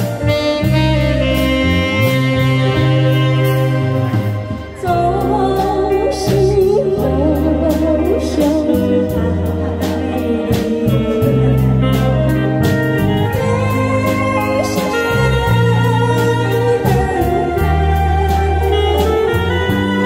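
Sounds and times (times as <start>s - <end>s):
live band with steady beat: 0.0s - 20.0s
woman singing with vibrato: 4.6s - 12.2s, 13.2s - 20.0s.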